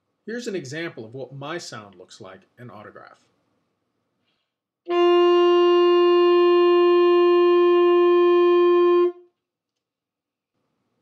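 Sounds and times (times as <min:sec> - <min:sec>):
alto saxophone long note: 0:04.9 - 0:09.3.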